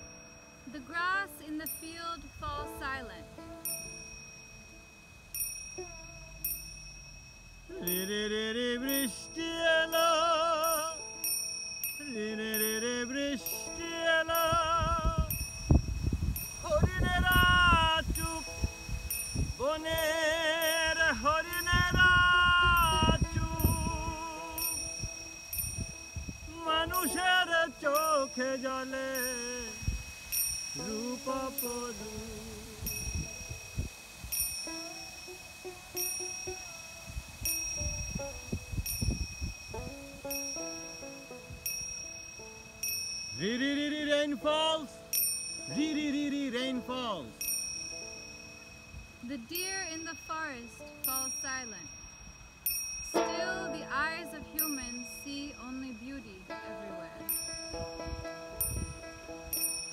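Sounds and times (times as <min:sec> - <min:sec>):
person singing wordless melody: 0:00.0 - 0:04.7, 0:05.7 - 0:06.7, 0:07.7 - 0:37.8, 0:43.3 - 0:47.5, 0:49.2 - 0:52.0, 0:53.0 - 0:59.9
small hand cymbals ringing: 0:00.0 - 0:59.9
string instrument: 0:00.0 - 0:59.9
plucked lute: 0:05.6 - 0:06.5, 0:07.6 - 0:11.2, 0:30.7 - 0:38.9, 0:53.0 - 0:59.9.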